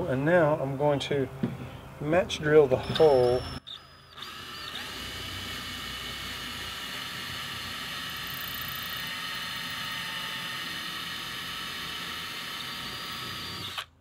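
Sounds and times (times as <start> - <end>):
cordless drill boring wood: 2.8 - 14.0.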